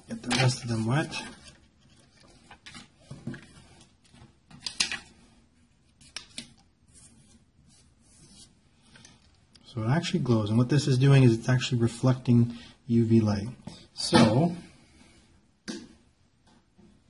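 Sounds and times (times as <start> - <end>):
paper rustling and crinkling: 0.0 - 5.3.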